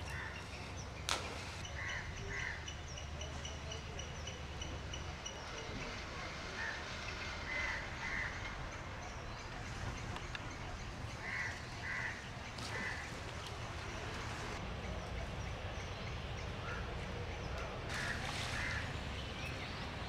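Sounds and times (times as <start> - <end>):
crows cawing: 0.1 - 0.4, 1.8 - 2.6, 7.5 - 8.4, 11.2 - 13.1, 17.9 - 18.9.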